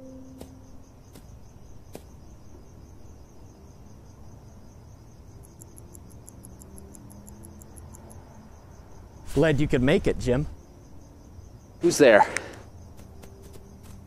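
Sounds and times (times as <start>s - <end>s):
crickets chirping: 0.0s - 14.0s
faster higher-pitched chirping: 5.4s - 8.1s.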